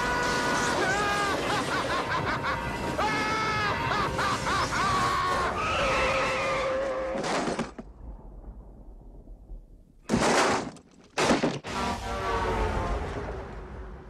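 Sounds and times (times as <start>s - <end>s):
men screaming in terror: 0.0s - 7.2s.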